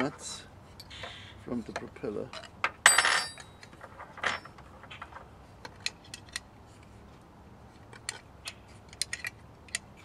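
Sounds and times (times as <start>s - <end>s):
small metal clicks and taps: 7.8s - 10.0s.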